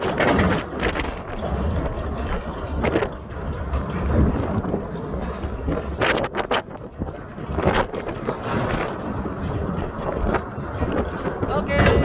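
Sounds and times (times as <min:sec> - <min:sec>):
steady low rumble: 0:00.0 - 0:12.0
wind buffeting microphone: 0:00.0 - 0:12.0.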